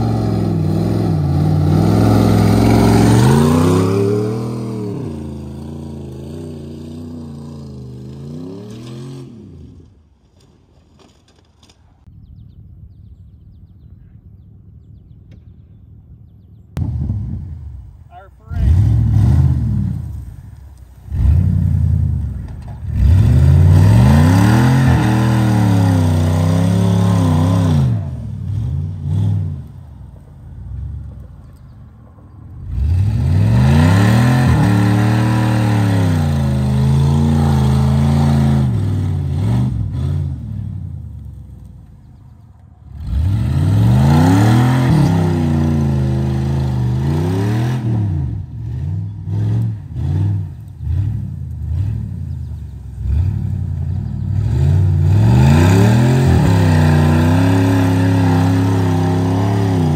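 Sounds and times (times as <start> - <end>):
pickup truck engine revving: 0.0 - 9.8, 18.6 - 20.4, 21.0 - 29.8, 32.6 - 41.4, 42.9 - 59.9.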